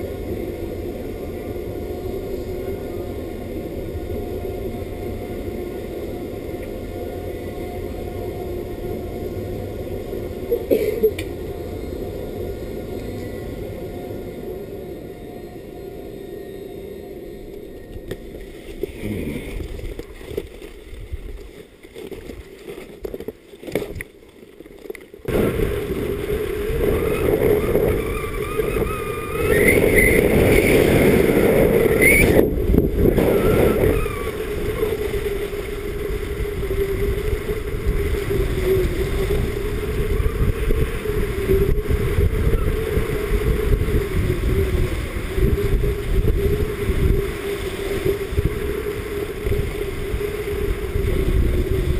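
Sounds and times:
skis running over snow: 0:18.0 - 0:51.9
wind rushing over microphone: 0:25.3 - 0:51.9.

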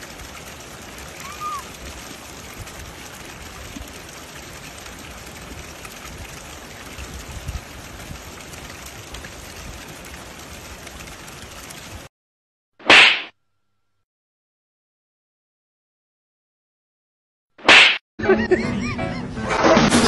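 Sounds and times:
loud sharp sound: 0:12.8 - 0:13.3.

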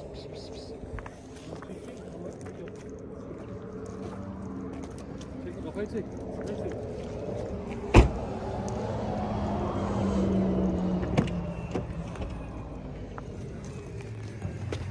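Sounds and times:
car passing: 0:03.0 - 0:14.9
car door slamming: 0:07.9 - 0:08.2.

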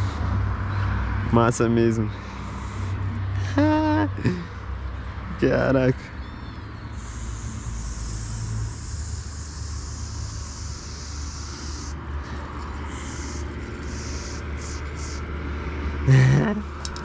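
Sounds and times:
spray paint can hissing: 0:00.0 - 0:00.2, 0:02.2 - 0:03.0, 0:06.9 - 0:12.0, 0:12.8 - 0:15.2.

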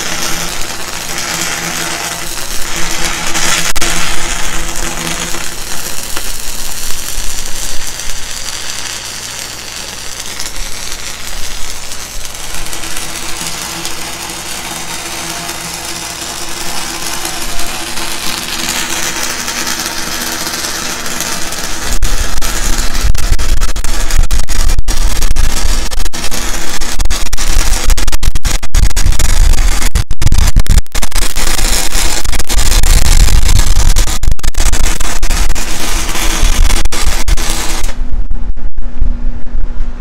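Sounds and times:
welding arc crackling: 0:00.0 - 0:38.9
steady low hum: 0:34.6 - 0:40.0.

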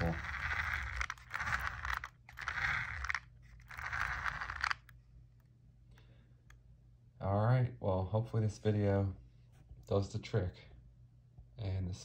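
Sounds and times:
toy car drivetrain whirring: 0:00.0 - 0:04.9.

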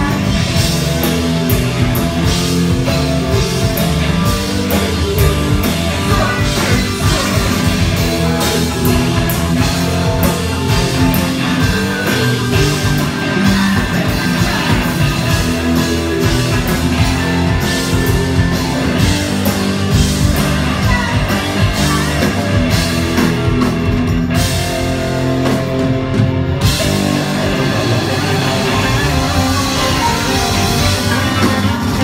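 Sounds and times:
drum kit: 0:00.0 - 0:32.0
electric guitar: 0:00.0 - 0:32.0
person singing: 0:04.3 - 0:19.6, 0:20.4 - 0:22.9.

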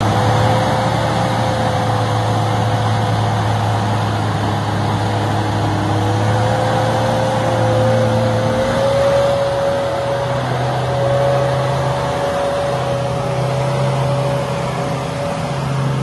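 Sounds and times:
steady whine: 0:00.0 - 0:16.0
suv engine running in mud: 0:00.0 - 0:16.0.

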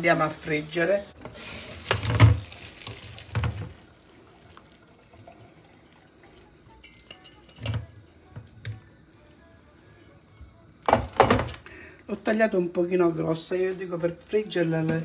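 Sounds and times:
water splashing and draining: 0:01.4 - 0:06.6.

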